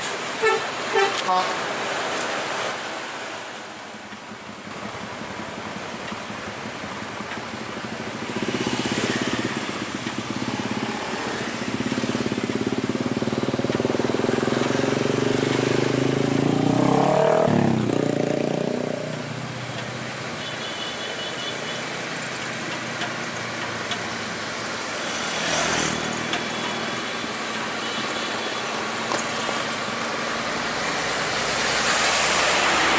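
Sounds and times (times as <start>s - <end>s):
vehicle engines running: 4.0s - 20.4s, 21.8s - 32.9s
motorcycle passing: 8.2s - 19.4s, 24.9s - 27.3s.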